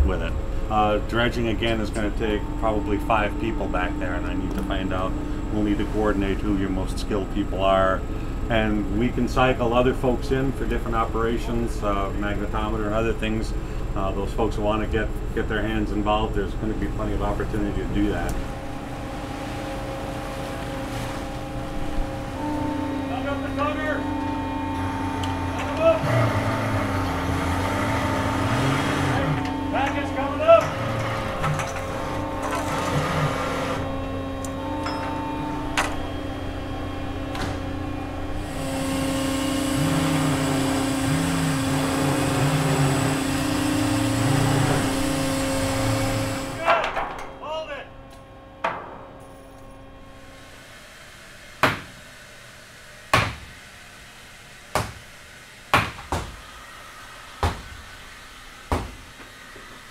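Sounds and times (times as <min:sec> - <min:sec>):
winch machinery humming: 0:00.0 - 0:59.9.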